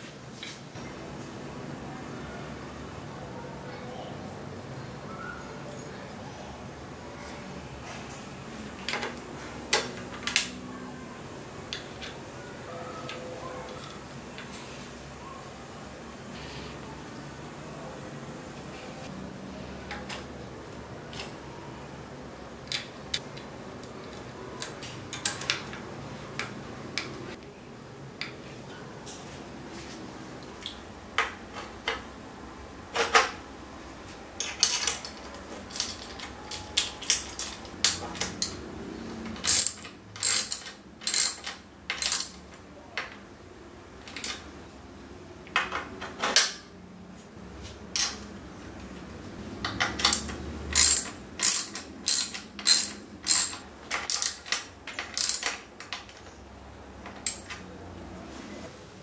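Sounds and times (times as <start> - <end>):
ratchet wrench clicking: 39.4 - 42.4, 49.7 - 55.6.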